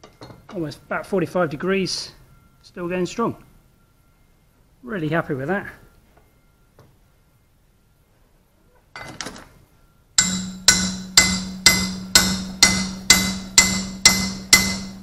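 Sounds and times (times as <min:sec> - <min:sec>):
hammer striking metal: 0:10.2 - 0:15.0.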